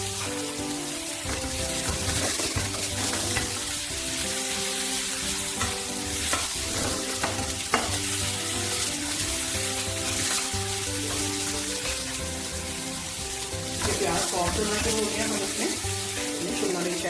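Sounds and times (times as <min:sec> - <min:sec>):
background music: 0:00.0 - 0:17.0
onions sizzling in a frying pan: 0:00.0 - 0:17.0
spatula knocking against pan: 0:05.6 - 0:08.0
metal spatula stirring: 0:05.6 - 0:12.3.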